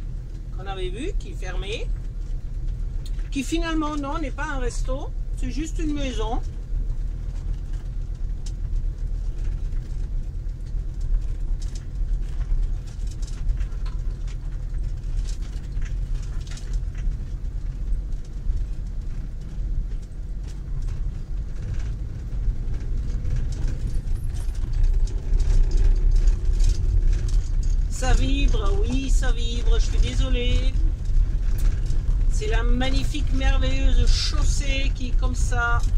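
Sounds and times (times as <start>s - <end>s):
vehicle engine and tyres rumbling: 0.0s - 35.9s.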